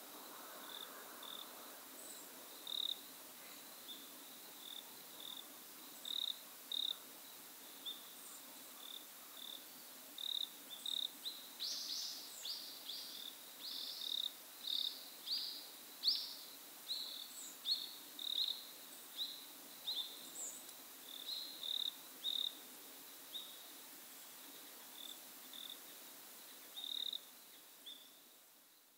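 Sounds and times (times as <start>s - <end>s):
insects chirping: 0.0s - 28.9s.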